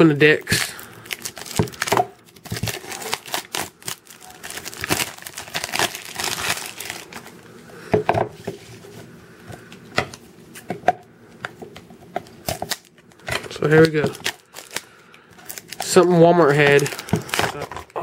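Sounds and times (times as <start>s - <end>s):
plastic packaging crinkling: 0.0s - 7.4s, 12.6s - 18.0s.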